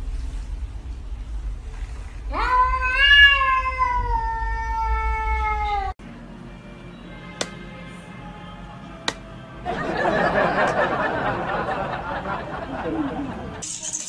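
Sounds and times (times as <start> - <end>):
cat meowing: 2.3 - 6.0.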